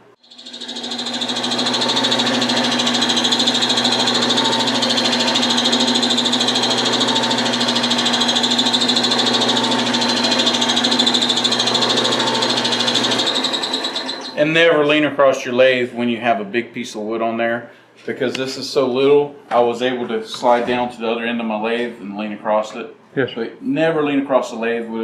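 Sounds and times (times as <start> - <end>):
lathe motor humming and whining: 0.2 - 14.4.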